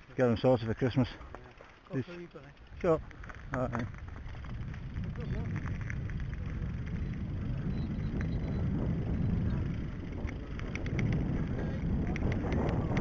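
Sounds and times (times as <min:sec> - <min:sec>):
small clicks and rattles: 0:01.3 - 0:08.6, 0:09.5 - 0:13.0
bike tyres rumbling on gravel: 0:02.7 - 0:13.0
wind on microphone: 0:02.8 - 0:13.0.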